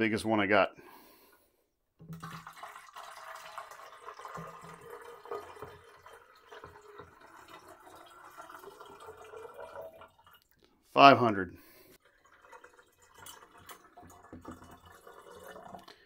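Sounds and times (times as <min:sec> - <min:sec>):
water pouring into a tank: 0:02.0 - 0:10.6, 0:12.0 - 0:16.0.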